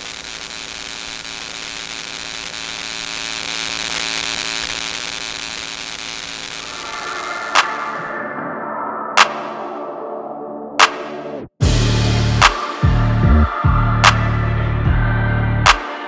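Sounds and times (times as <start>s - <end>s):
electronic static hiss: 0.0s - 7.7s.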